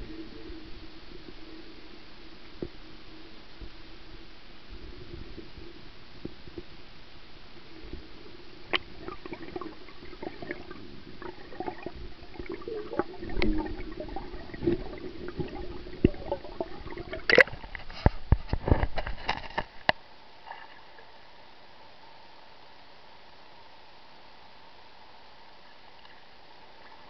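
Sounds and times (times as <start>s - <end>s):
water gurgling and sloshing: 0.0s - 21.3s.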